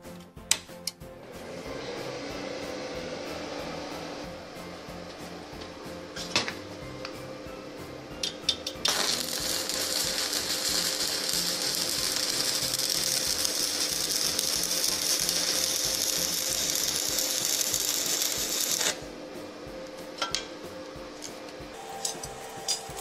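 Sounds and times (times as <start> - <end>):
welding arc crackling hiss: 8.8 - 19.1, 21.8 - 23.0.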